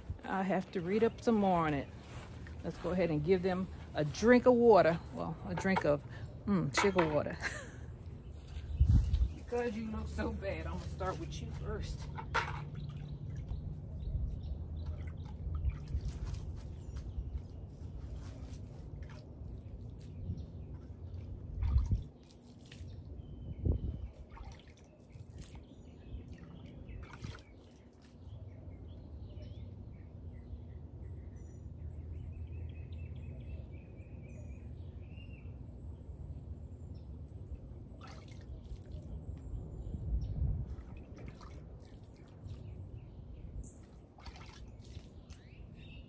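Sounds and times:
small birds chirping: 7.8s - 18.8s, 19.5s - 46.0s
water trickling onto soil: 14.6s - 23.4s, 24.1s - 28.3s, 38.0s - 39.2s, 40.6s - 43.0s, 43.8s - 45.8s.

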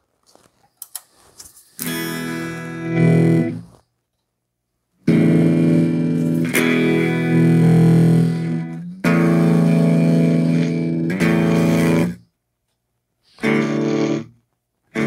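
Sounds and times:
electric guitar chords: 1.8s - 3.7s, 5.0s - 12.2s, 13.4s - 15.0s.

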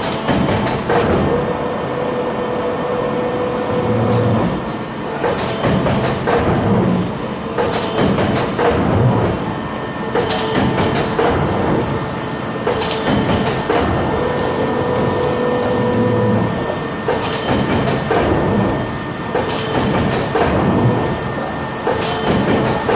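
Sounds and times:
box-making machine whine: 0.0s - 22.9s.

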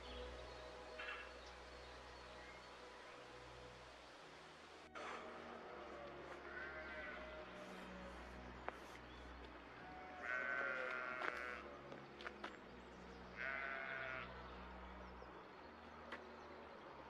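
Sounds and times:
animal bleating: 6.4s - 7.4s, 10.1s - 11.7s, 13.4s - 14.3s.

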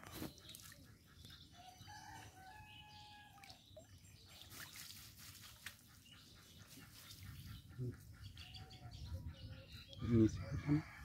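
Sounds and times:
faint rooster crowing: 1.6s - 3.4s, 10.3s - 11.0s.

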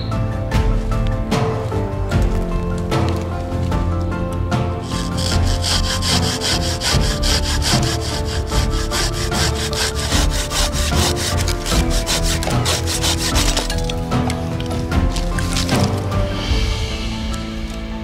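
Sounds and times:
hand saw cutting wood: 4.8s - 16.1s.

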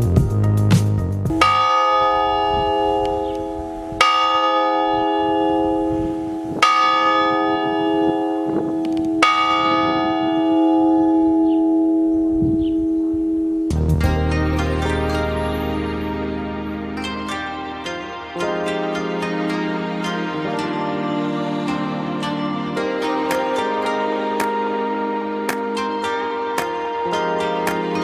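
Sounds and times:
background music: 0.0s - 12.1s, 13.7s - 28.0s
church bell ringing: 1.3s - 21.2s.

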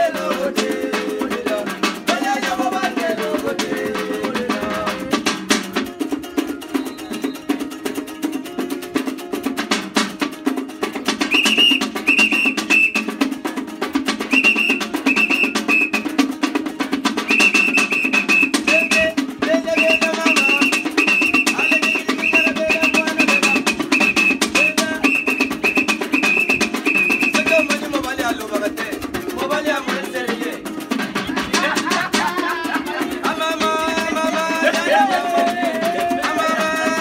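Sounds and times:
tin drum beaten fast: 0.0s - 37.0s
high whistled tune: 6.7s - 7.6s, 11.2s - 13.1s, 14.2s - 16.1s, 17.2s - 19.1s, 19.7s - 27.8s.

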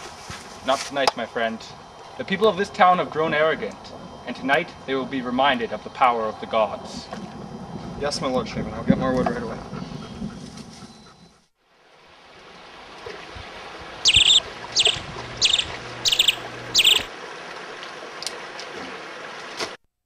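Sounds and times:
running water: 11.8s - 19.8s
bird calling: 14.0s - 17.1s.

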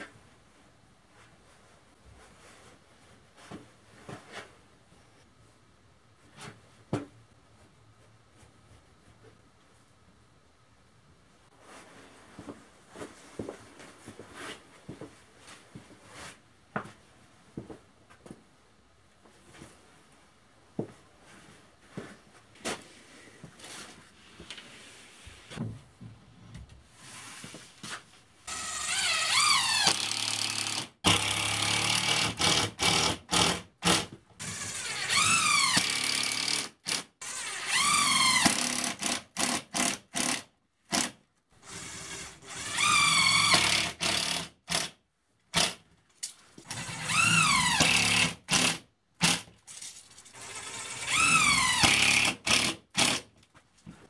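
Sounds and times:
cordless drill driving screws: 28.5s - 44.9s, 46.7s - 49.5s, 50.4s - 53.2s.

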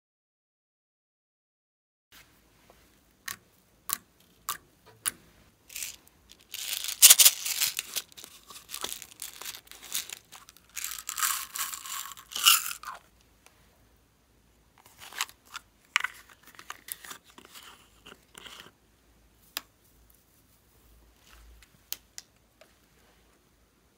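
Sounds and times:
beads pouring from bottle: 5.7s - 13.0s
plastic packaging crinkling: 5.7s - 13.0s.

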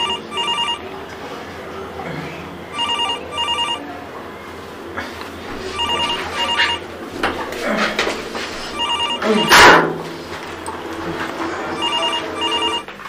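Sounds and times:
telephone ringing: 0.0s - 0.9s, 2.7s - 3.9s, 5.6s - 6.9s, 8.7s - 9.7s, 11.7s - 13.0s.

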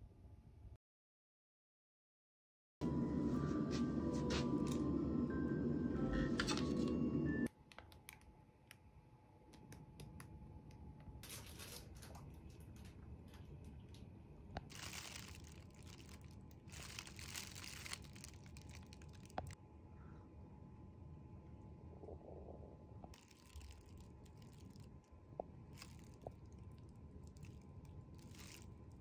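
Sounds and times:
plastic bags crinkling: 14.7s - 19.6s, 23.2s - 24.9s, 25.7s - 29.0s.

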